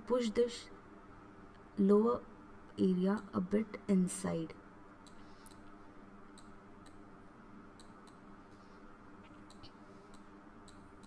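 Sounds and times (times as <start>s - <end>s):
low steady hum: 0.0s - 11.0s
computer mouse clicks: 5.0s - 7.0s, 7.8s - 8.2s, 9.2s - 11.0s.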